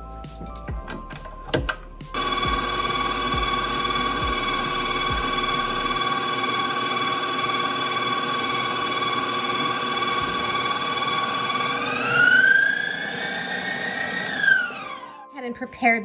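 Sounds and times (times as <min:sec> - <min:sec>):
stand mixer motor whining: 0:02.1 - 0:15.3.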